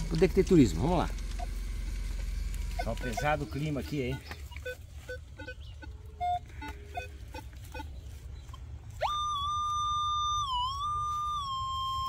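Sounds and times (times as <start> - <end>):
metal detector beep: 2.7 - 8.0, 9.0 - 12.0.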